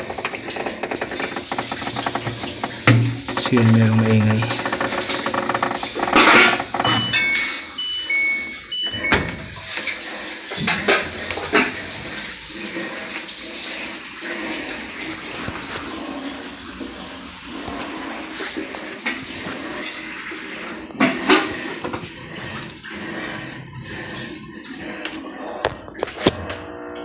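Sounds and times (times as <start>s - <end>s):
water rushing to drain: 0.0s - 8.6s, 9.4s - 26.0s
washing machine spinning: 0.0s - 27.0s
short high beeps: 6.9s - 9.6s.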